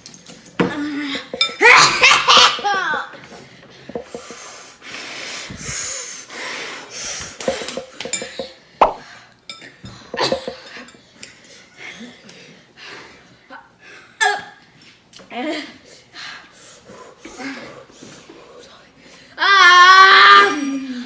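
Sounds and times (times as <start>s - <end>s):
forks clinking on glass bowls: 1.3s - 1.7s, 7.5s - 8.6s, 9.5s - 11.5s
person sniffing and breathing: 4.0s - 7.9s.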